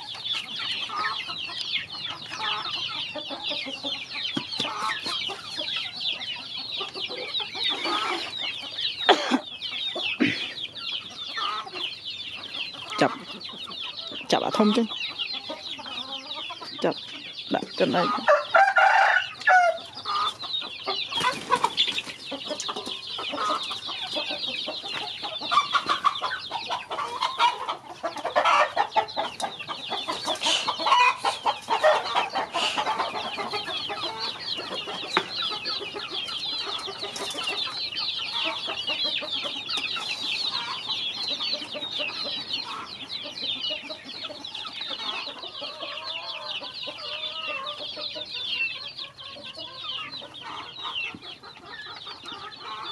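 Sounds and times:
chickens clucking: 0.0 - 52.9
chicks peeping: 0.0 - 52.9.

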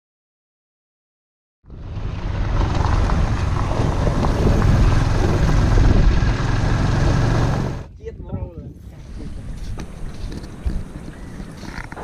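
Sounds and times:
motorcycle engine and road noise: 1.6 - 7.9, 9.0 - 12.0
wind buffeting microphone: 1.7 - 12.0.

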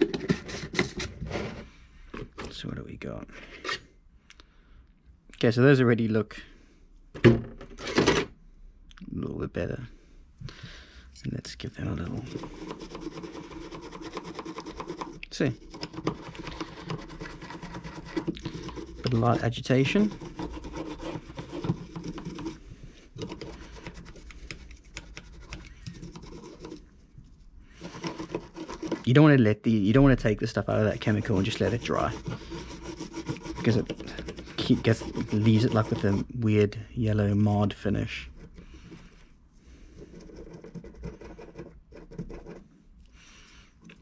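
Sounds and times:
brush scrubbing metal: 12.1 - 22.6, 23.2 - 26.9, 27.8 - 29.1, 30.7 - 36.3.

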